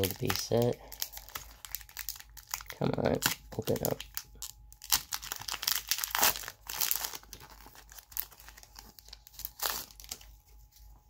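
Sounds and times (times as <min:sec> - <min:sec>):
foil wrapper crinkling: 0:00.0 - 0:10.8.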